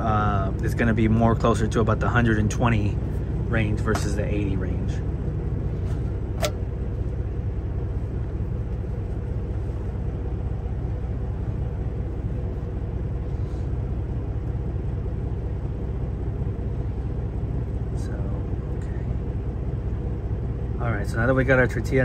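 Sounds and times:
truck engine idling: 0.0 - 22.0
sharp click: 6.4 - 6.6.

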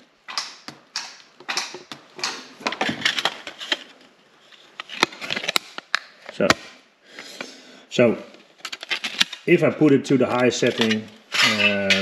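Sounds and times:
sharp clicks: 0.3 - 2.5.

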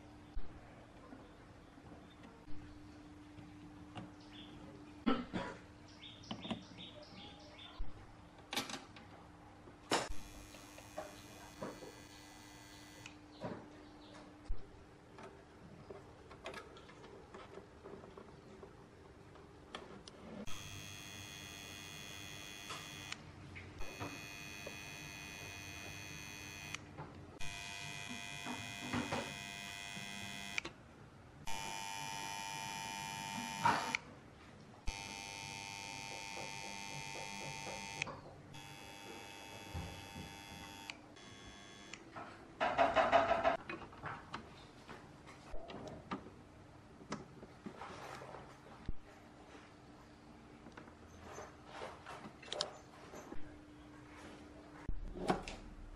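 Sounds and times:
electrical buzz: 10.1 - 13.2, 20.4 - 23.2, 23.8 - 26.8, 27.4 - 30.6, 31.4 - 34.0, 34.8 - 42.0.

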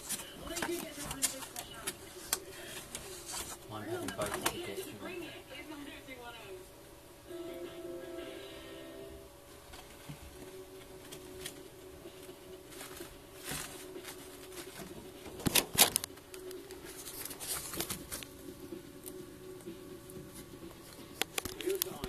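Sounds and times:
handling rustles: 0.0 - 4.9, 12.3 - 18.4
steady low hum: 0.0 - 22.0.

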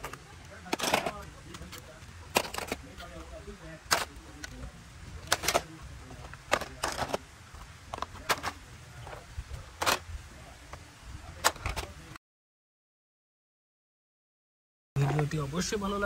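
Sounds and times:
plastic toys clattering into basket: 0.0 - 3.0, 3.9 - 4.2, 5.2 - 7.3, 7.9 - 9.2, 9.8 - 10.1.

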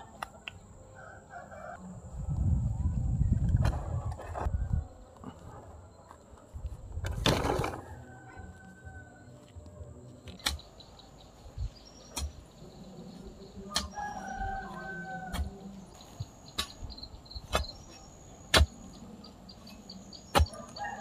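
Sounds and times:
rooster crowing: 0.9 - 1.8, 7.7 - 9.4, 13.6 - 15.6, 20.4 - 21.0.

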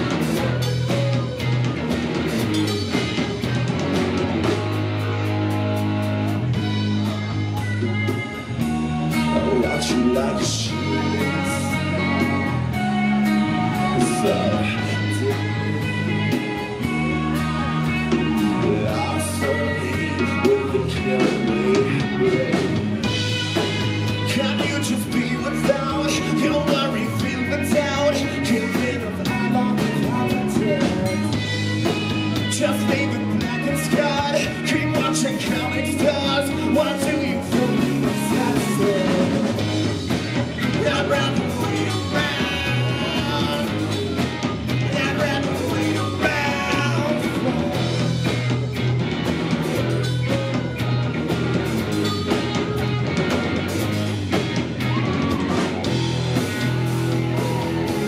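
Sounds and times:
drum kit: 0.0 - 58.0
electric guitars: 0.0 - 58.0
man singing: 8.2 - 39.9, 40.6 - 48.3.

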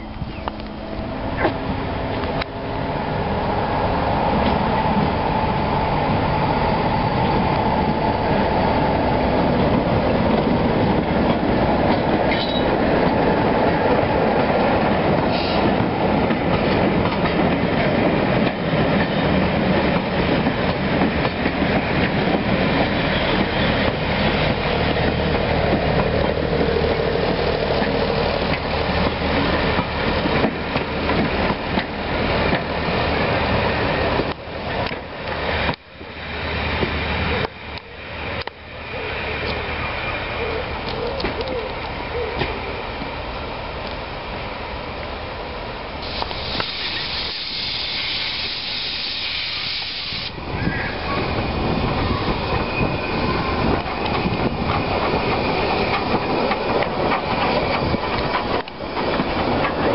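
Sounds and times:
train wheels clicking over rail joints: 9.6 - 33.0, 46.0 - 59.9.

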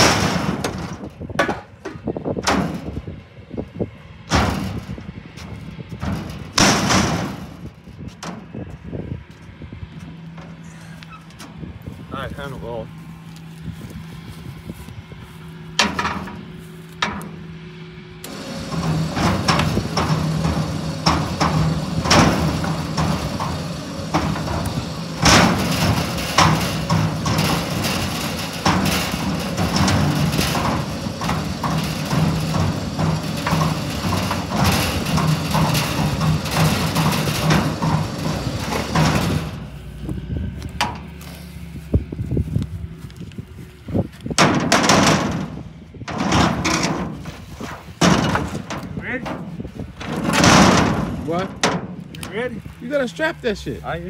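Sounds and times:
low hum: 0.0 - 53.8
metal parts clanking: 18.2 - 40.0, 44.4 - 52.7.

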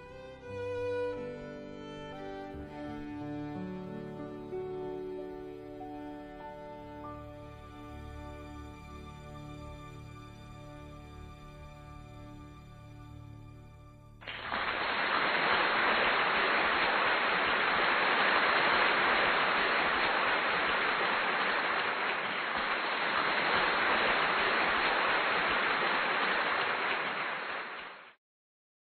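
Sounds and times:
audience applause: 14.2 - 28.2.

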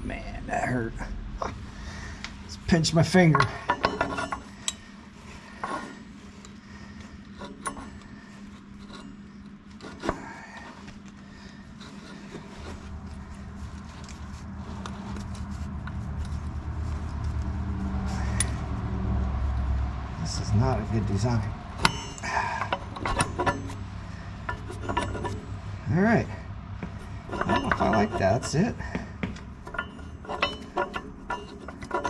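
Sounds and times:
low steady rumble: 0.0 - 32.0
metal pin clicks and knocks: 21.8 - 23.8.

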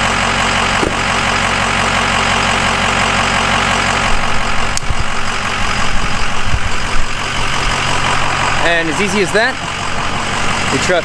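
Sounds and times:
diesel engine idling: 0.0 - 11.0
low thumps: 0.8 - 1.5.

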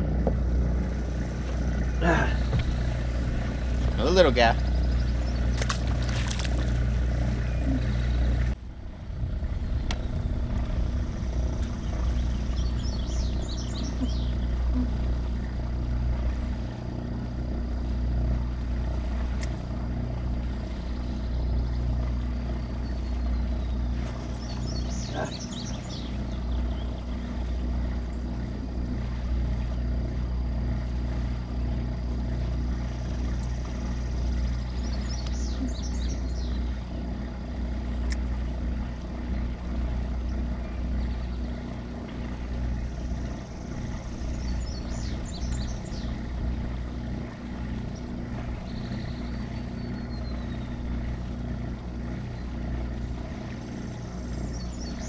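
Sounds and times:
bird trilling song: 4.0 - 8.5, 11.1 - 15.0, 20.8 - 27.4, 33.0 - 36.8, 42.7 - 47.1, 47.8 - 51.2, 52.2 - 55.0
electric motor humming: 9.5 - 55.0.

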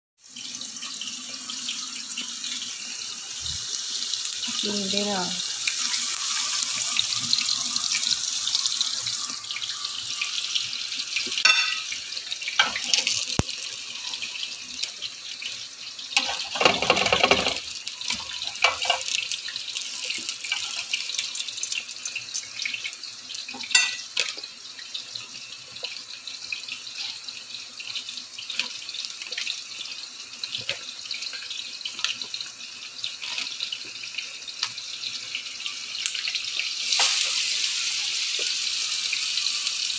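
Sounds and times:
oil sizzling: 0.2 - 39.9
cookware knocking: 11.5 - 11.8.

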